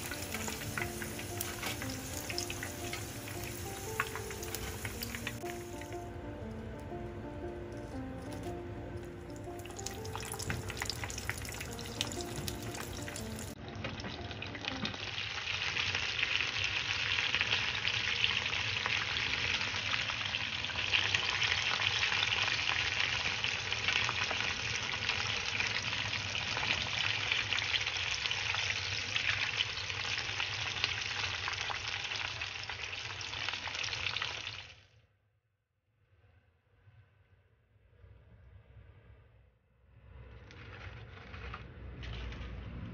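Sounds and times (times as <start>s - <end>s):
background music: 0.0s - 15.2s
wings deep-frying in hot oil: 0.0s - 34.9s.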